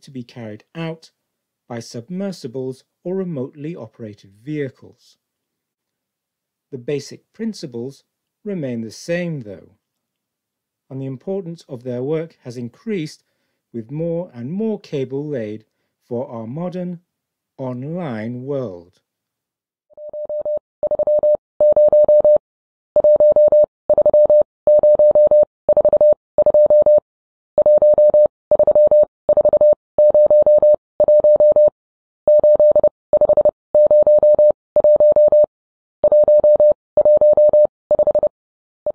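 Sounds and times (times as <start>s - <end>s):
morse code beeps: 20.0s - 22.4s, 23.0s - 27.0s, 27.6s - 31.7s, 32.3s - 38.3s.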